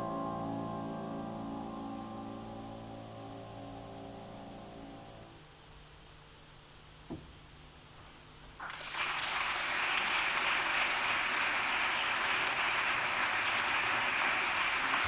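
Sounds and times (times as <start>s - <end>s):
audience applauding: 8.6s - 15.0s.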